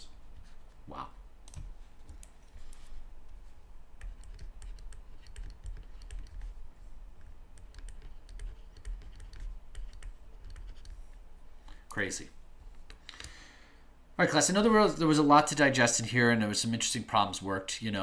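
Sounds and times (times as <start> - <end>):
low steady hum: 0.0 - 18.0
stylus tapping on tablet screen: 7.2 - 11.0.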